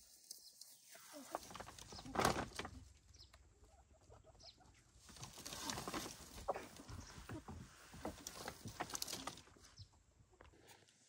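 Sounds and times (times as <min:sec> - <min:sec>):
rustling: 0:00.0 - 0:03.1, 0:05.0 - 0:09.9
chickens clucking: 0:00.6 - 0:09.9.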